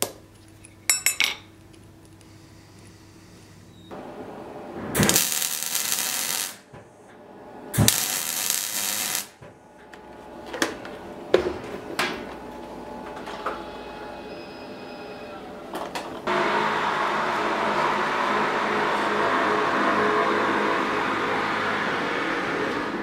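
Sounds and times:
welder crackling hiss: 5.0s - 6.7s, 7.8s - 9.4s.

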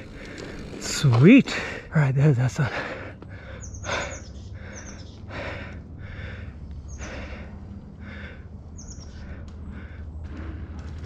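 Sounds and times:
person breathing hard: 2.7s - 11.0s.

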